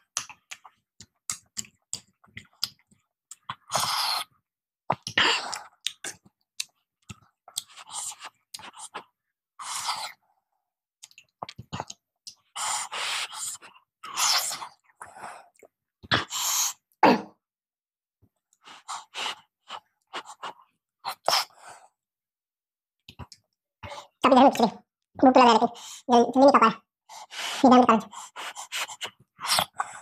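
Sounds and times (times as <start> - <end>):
lip smacks and clicks: 0.0 - 3.9, 4.9 - 9.1, 11.0 - 12.6, 23.0 - 23.6.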